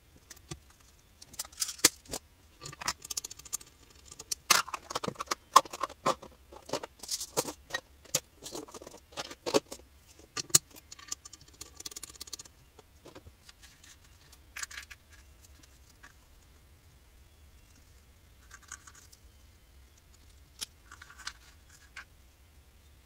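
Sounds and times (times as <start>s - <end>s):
plastic box handled and closed: 0.3s - 12.4s.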